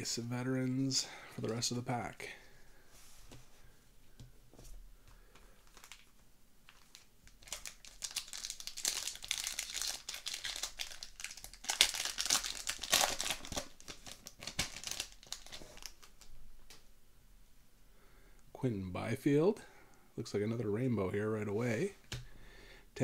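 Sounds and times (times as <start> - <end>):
foil wrapper crinkling and tearing: 5.6 - 6.1, 6.7 - 16.3.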